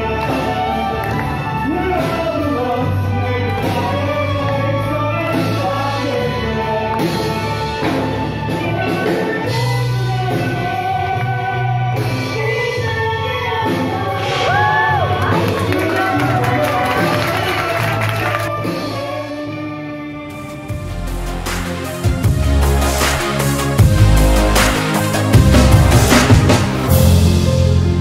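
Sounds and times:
person singing: 0:00.0 - 0:28.0
steady bass line: 0:20.3 - 0:28.0.

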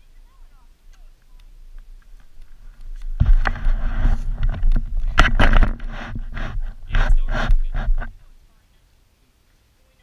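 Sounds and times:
camera handling rumble: 0:01.9 - 0:08.2.

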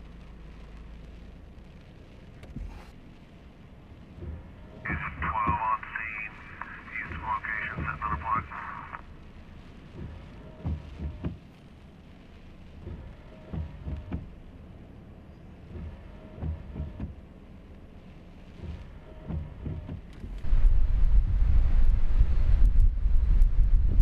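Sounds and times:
windshield wipers thumping: 0:01.6 - 0:05.8, 0:07.0 - 0:08.4, 0:09.1 - 0:20.5
wiper motor whine: 0:02.4 - 0:24.0
wind rumble on microphone: 0:15.4 - 0:24.0.

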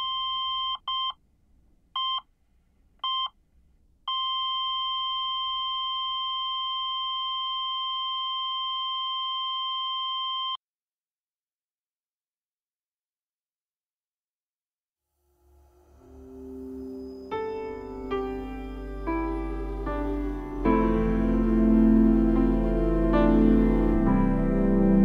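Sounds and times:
answering machine beeps: 0:00.0 - 0:01.2, 0:02.0 - 0:02.2, 0:03.0 - 0:03.3, 0:04.1 - 0:10.6.

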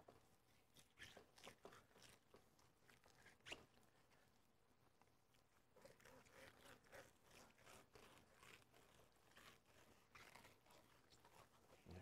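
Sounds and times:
knife scraping fish skin: 0:05.7 - 0:11.8.

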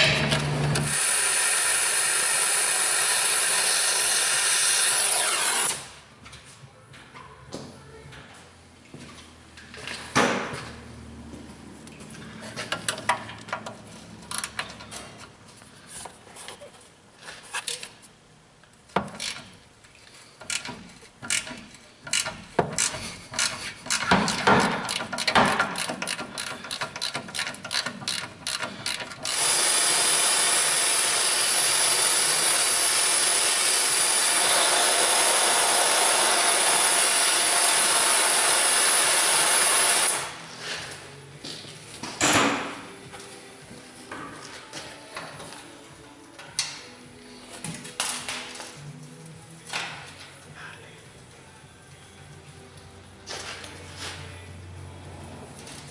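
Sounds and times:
ratchet wrench clicking: 0:19.2 - 0:19.6, 0:20.4 - 0:30.3.

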